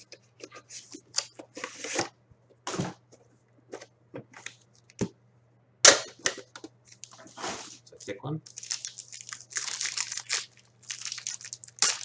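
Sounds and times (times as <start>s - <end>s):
packaging rustling and cracking: 8.5s - 12.0s.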